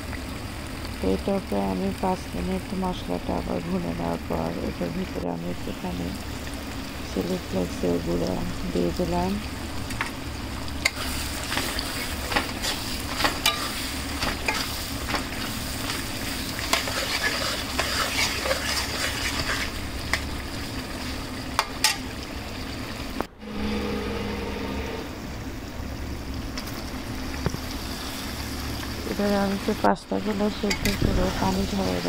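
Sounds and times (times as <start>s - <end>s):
food sizzling in a pan: 0.0s - 25.1s, 25.7s - 32.0s
metal spatula scraping a pan: 10.8s - 15.2s, 16.6s - 19.7s.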